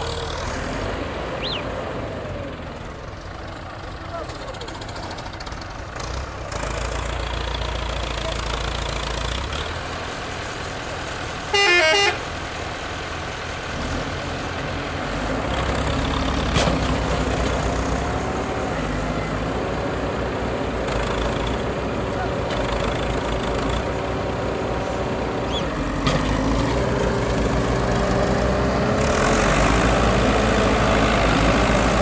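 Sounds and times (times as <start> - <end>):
tractor engine straining: 0.0 - 32.0
vehicle horn blast: 11.5 - 12.2.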